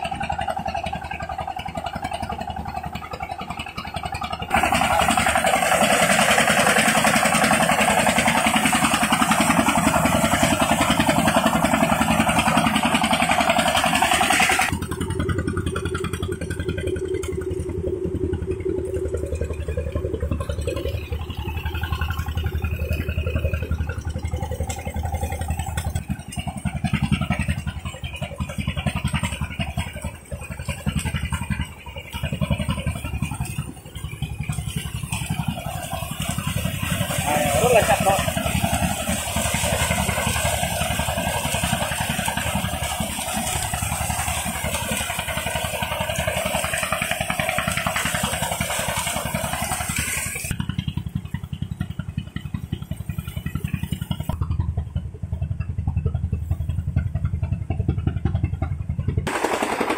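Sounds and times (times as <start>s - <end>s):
threshing machine engine running: 0.0s - 59.9s.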